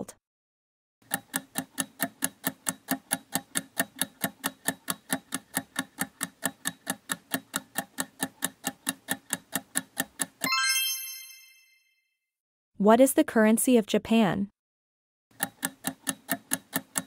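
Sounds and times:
clock ticking: 1.0 - 10.5, 15.3 - 17.0.

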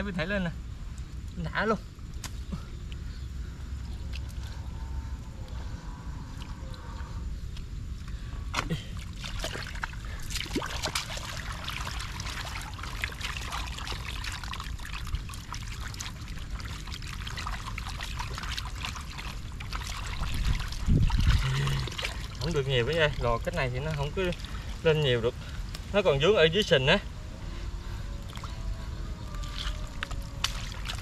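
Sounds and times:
low rumble: 0.0 - 31.0
muddy water splashing: 8.3 - 27.0, 28.0 - 31.0.

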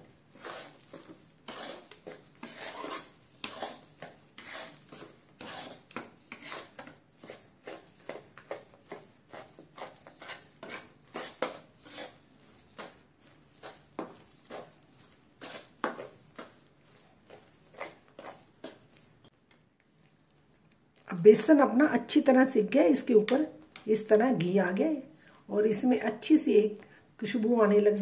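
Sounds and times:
spatula scraping metal pan: 0.0 - 19.0.

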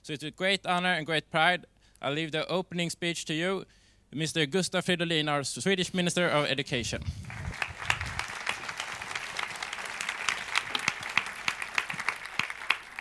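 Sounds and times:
audience applauding: 7.2 - 13.0.

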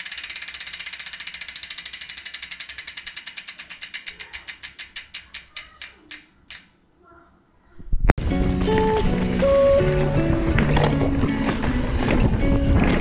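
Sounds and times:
bicycle freewheel hub ticking: 0.0 - 6.7.

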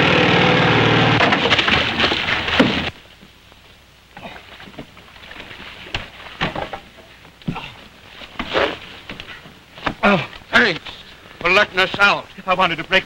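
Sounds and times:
motorboat crashing ashore: 0.0 - 3.0
knocks and thumps: 5.8 - 12.1.

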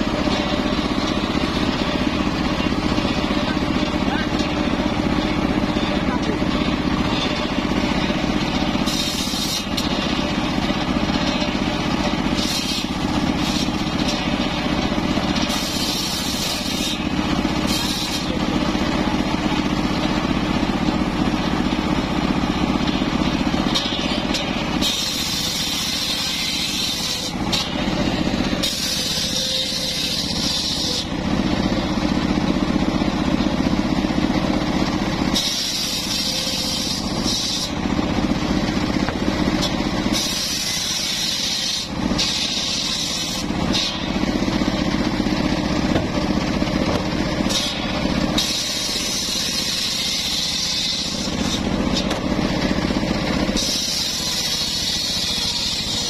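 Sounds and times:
circular saw cutting wood: 0.0 - 56.0.

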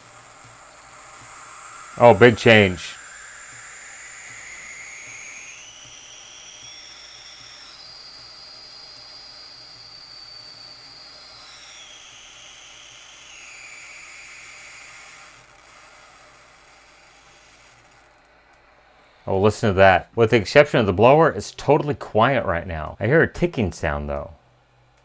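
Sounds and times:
hot air gun hiss: 0.0 - 15.5
amplifier squeal through speaker: 0.0 - 18.0.

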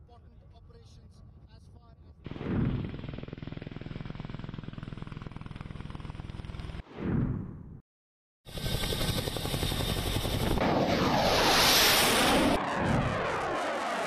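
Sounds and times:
fighter jet flying past: 10.4 - 14.0.

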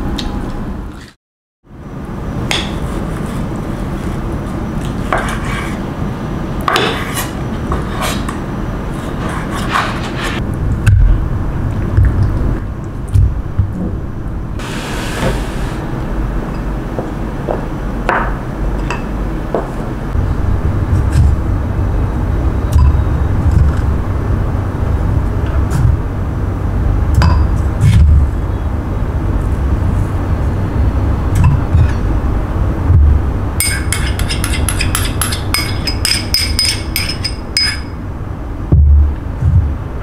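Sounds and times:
low rumble with dull thumps: 10.4 - 14.6, 20.1 - 33.6, 38.0 - 40.0
spoons clinking against glass jars: 33.6 - 37.9.

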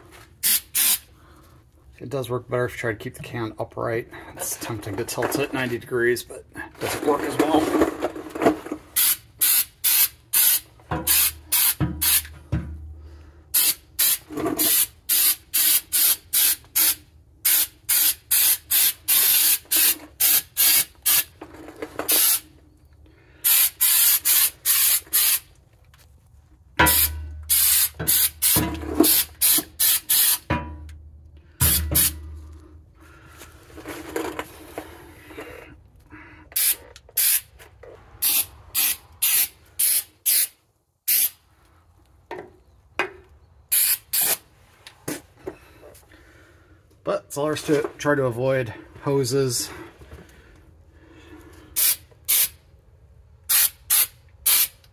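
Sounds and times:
aerosol can spraying: 0.4 - 1.0, 13.6 - 21.3, 23.5 - 25.4, 26.9 - 30.4, 31.6 - 32.2, 36.6 - 37.4, 38.2 - 40.5, 41.1 - 41.4, 43.7 - 44.4, 51.8 - 52.5, 53.5 - 54.7.

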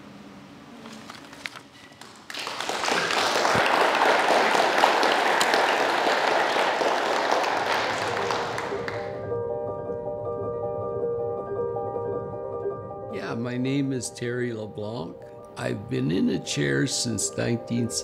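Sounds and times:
audience applauding: 2.0 - 9.2.

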